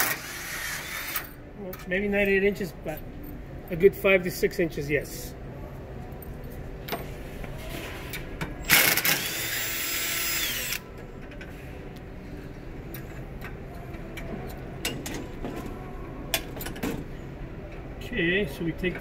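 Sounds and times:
cordless drill motor whine: 8.7 - 10.8.

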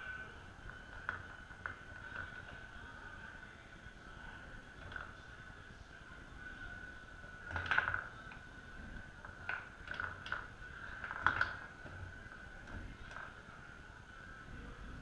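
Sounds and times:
steady high hum: 0.0 - 15.0
foosball knocking and clacking: 0.6 - 2.7, 4.7 - 5.4, 7.2 - 13.5.

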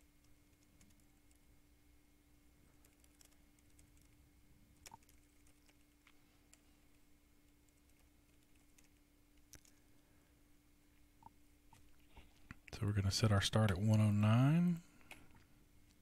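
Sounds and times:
faint electrical hum: 0.0 - 16.0
typing on computer keyboard: 0.2 - 1.4, 2.8 - 4.2, 4.8 - 6.0, 7.7 - 9.8.

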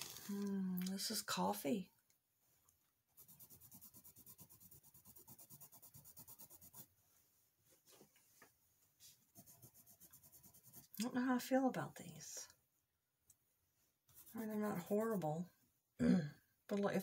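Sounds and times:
pencil scribbling on paper: 3.1 - 6.9, 9.3 - 11.0, 14.1 - 15.3.

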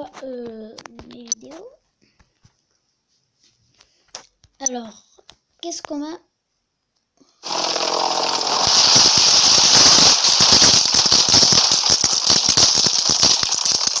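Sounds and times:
loud steady hiss: 7.4 - 14.0
rattle of rapid clicks: 7.4 - 14.0.

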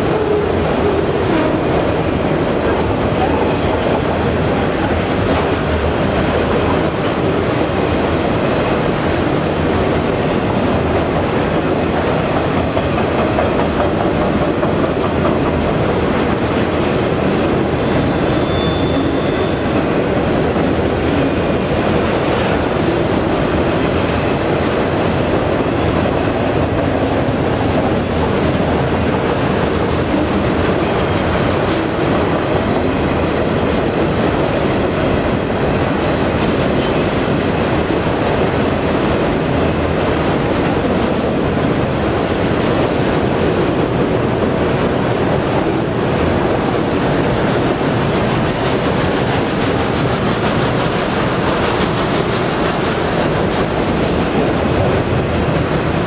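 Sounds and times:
steel wheels rumbling on rail: 0.0 - 56.0
high wheel squeal: 17.9 - 19.8.

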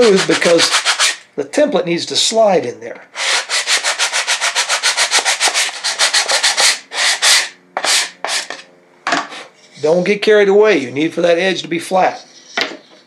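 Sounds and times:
sanding block rubbing wood: 0.0 - 1.2, 3.2 - 8.6.

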